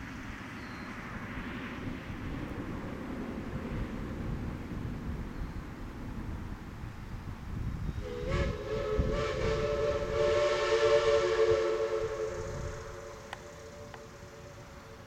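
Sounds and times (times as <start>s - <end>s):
steam whistle blast: 8.0s - 15.0s.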